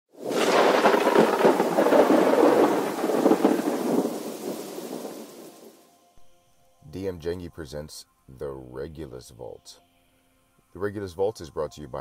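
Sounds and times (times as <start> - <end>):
crackling thunderclap: 0.1 - 5.8.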